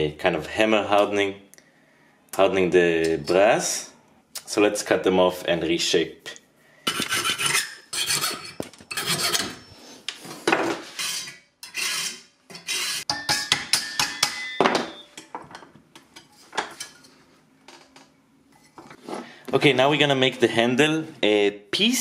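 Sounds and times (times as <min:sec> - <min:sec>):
rasping hand saw strokes on metal: 0:06.9 - 0:09.7, 0:10.8 - 0:13.1.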